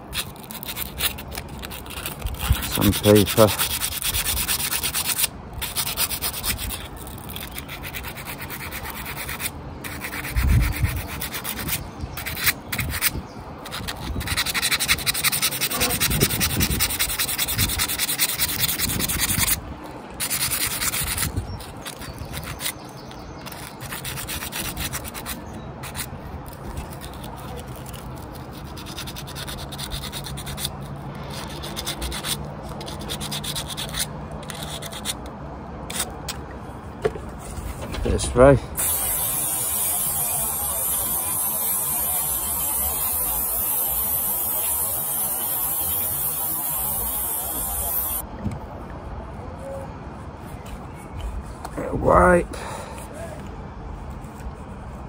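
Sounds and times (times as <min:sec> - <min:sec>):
sandpaper rubbing on metal: 0:00.0 - 0:19.6, 0:20.2 - 0:22.8, 0:23.4 - 0:35.2, 0:38.8 - 0:48.2.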